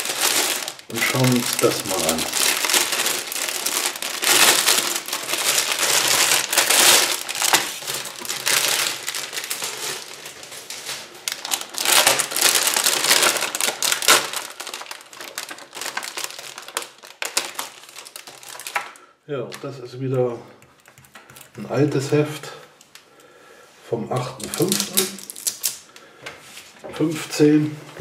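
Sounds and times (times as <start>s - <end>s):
plastic bag crinkling: 0.0s - 19.8s, 24.2s - 25.9s.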